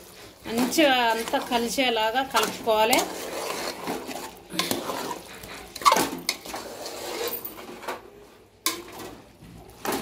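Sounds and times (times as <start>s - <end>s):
metal spoon scraping a pot: 0.0s - 7.9s.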